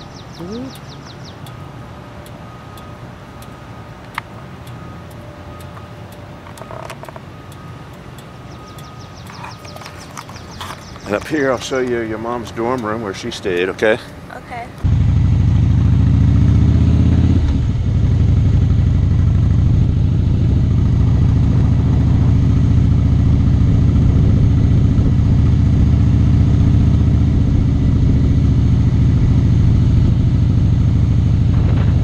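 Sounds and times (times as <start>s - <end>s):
motorcycle engine running: 14.8s - 32.0s.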